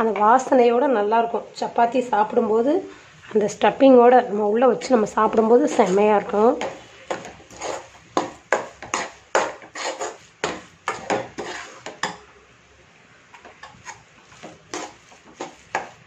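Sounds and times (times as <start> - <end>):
metal spatula knocking on a pan: 6.6 - 7.4, 8.2 - 9.7.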